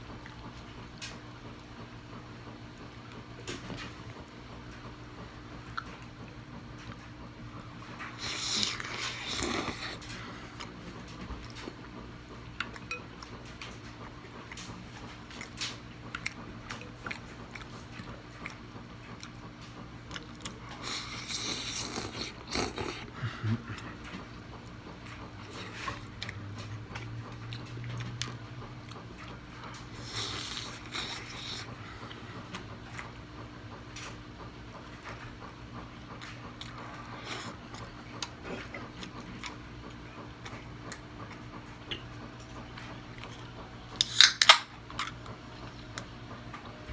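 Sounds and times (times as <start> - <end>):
wet chewing: 7.8 - 34.2, 34.8 - 46.2
noodles slurping: 8.0 - 10.8, 20.1 - 24.8, 25.4 - 33.0.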